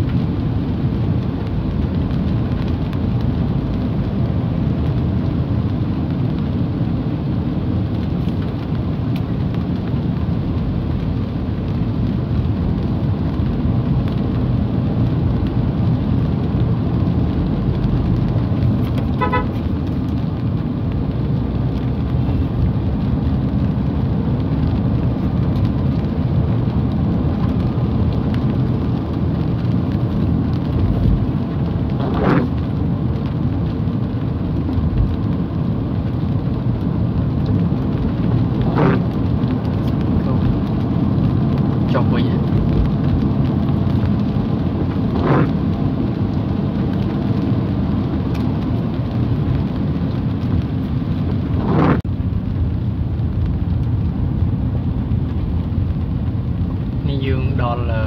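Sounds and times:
car road and tyre noise: 0:00.0 - 0:58.0
rain on car: 0:00.0 - 0:58.0
car horn toot: 0:19.1 - 0:19.6.

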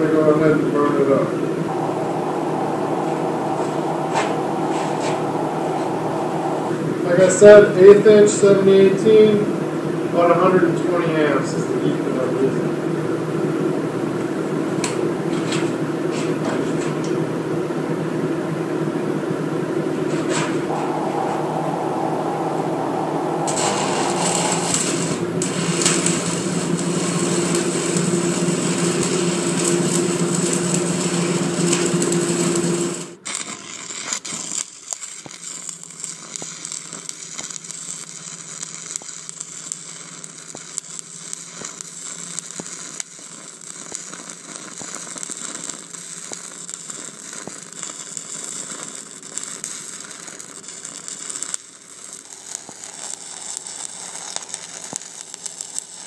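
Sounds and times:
steady hum: 0:01.6 - 0:08.2, 0:20.5 - 0:31.7
welding arc crackling: 0:23.2 - 0:56.0.

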